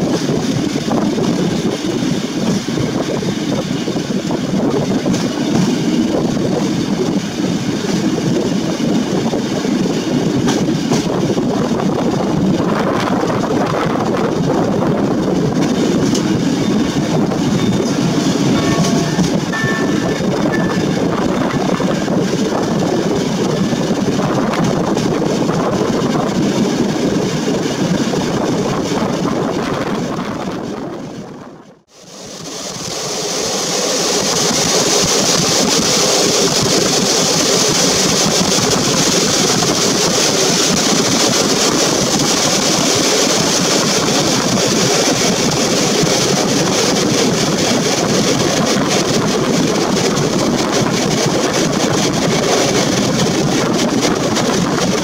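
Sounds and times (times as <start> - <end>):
train wheels rumbling on rails: 0.0 - 55.0
wind rush: 0.0 - 55.0.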